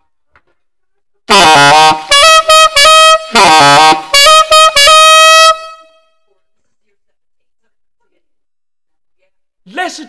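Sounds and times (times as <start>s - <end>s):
alto saxophone playing high notes: 1.3s - 6.1s.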